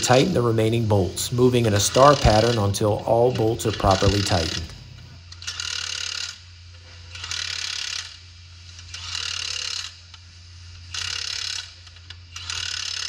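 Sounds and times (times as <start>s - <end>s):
steady low hum: 0.0s - 5.5s
impact wrench hammering: 1.7s - 4.9s.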